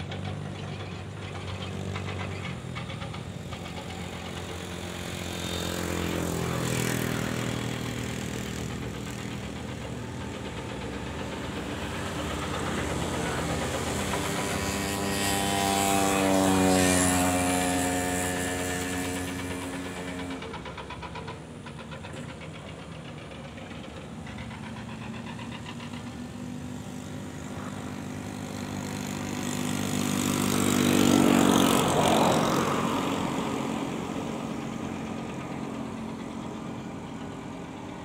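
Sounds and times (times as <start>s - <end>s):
vehicles passing: 0.0s - 38.0s.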